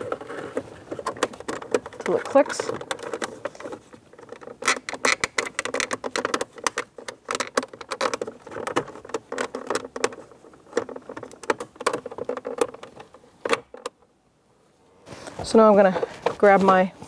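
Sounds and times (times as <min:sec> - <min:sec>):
plastic trim clicking and rustling: 0:00.0 - 0:14.1.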